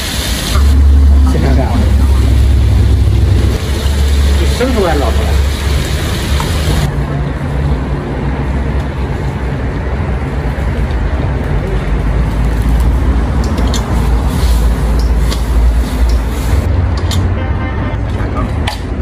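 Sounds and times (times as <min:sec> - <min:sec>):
food sizzling in a wok: 0:00.0 - 0:01.0, 0:01.8 - 0:06.9
low rumble: 0:00.5 - 0:07.1.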